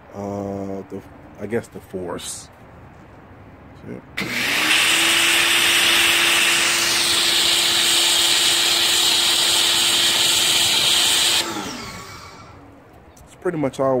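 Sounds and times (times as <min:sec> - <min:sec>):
water jet hissing: 0:04.2 - 0:12.6
pressure washer motor humming: 0:04.2 - 0:12.7.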